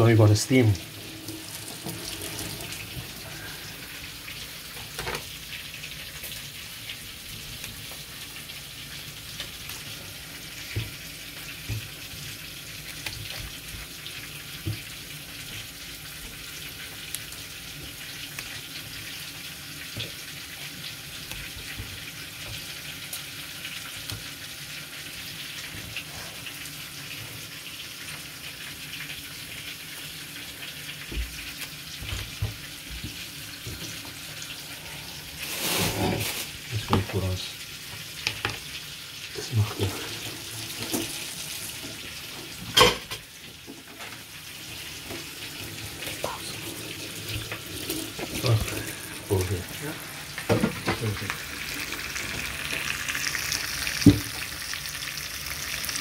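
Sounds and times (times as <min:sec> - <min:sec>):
tap water running into sink: 0:00.0 - 0:24.5, 0:27.0 - 0:34.6, 0:35.6 - 0:56.0.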